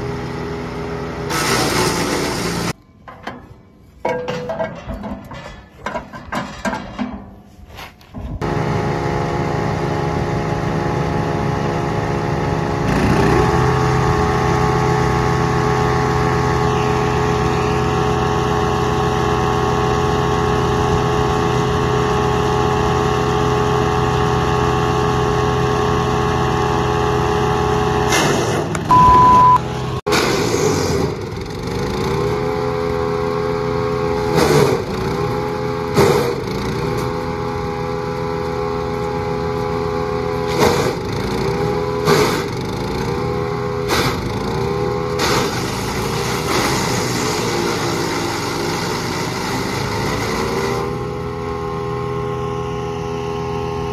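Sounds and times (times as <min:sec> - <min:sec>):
wood chipper engine running: 0:00.0 - 0:02.8, 0:08.4 - 0:53.9
short steady beep: 0:28.9 - 0:29.7.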